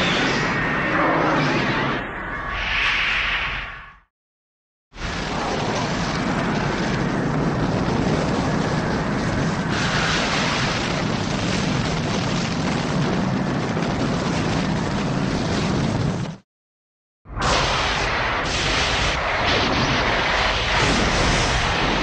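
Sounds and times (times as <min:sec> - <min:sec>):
monster rumbling roar: 0:00.0 - 0:02.0.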